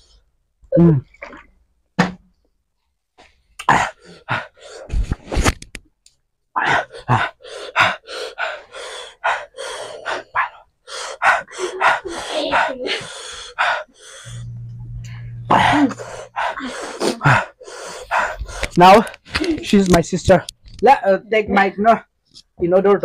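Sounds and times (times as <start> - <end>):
people coughing and gasping: 3.6 - 4.9, 11.2 - 13.2, 15.5 - 17.6.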